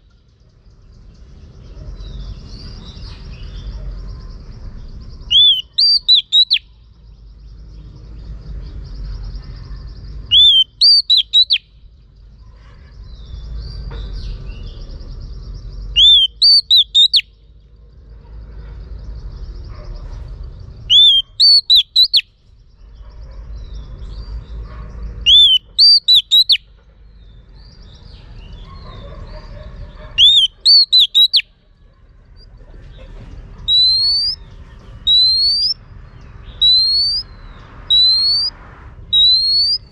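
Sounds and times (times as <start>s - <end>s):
bird whistled calls: 5.2s - 6.7s, 10.3s - 11.7s, 15.9s - 17.3s, 20.9s - 22.3s, 25.2s - 26.6s, 30.2s - 31.5s, 33.7s - 35.8s, 36.6s - 38.5s, 39.1s - 39.9s.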